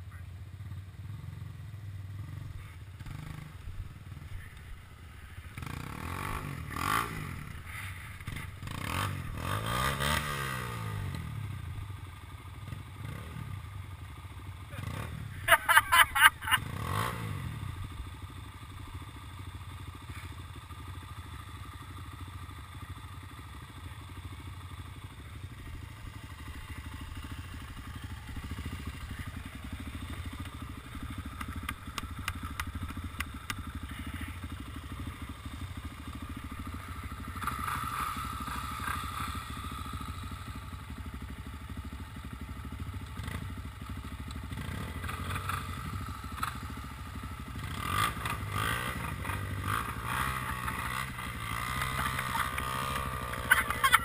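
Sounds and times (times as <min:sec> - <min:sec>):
quad engine idling: 0:00.0 - 0:54.0
quad engine revving: 0:02.2 - 0:04.5, 0:05.4 - 0:11.8, 0:12.6 - 0:13.6, 0:14.6 - 0:18.1, 0:25.0 - 0:40.9, 0:42.7 - 0:54.0.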